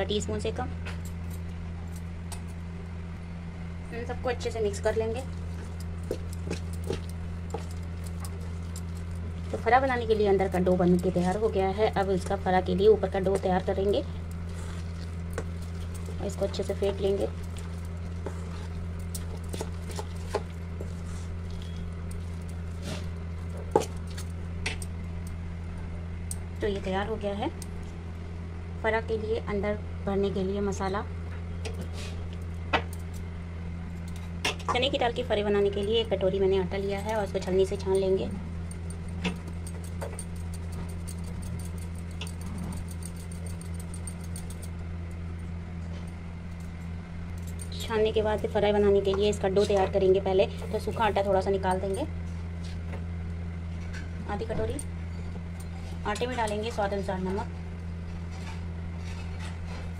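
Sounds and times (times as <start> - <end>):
steady low hum: 0.0 - 59.9
flour sieve ticking and rustling: 5.0 - 22.8
paste squishing in bowl: 14.2 - 22.8.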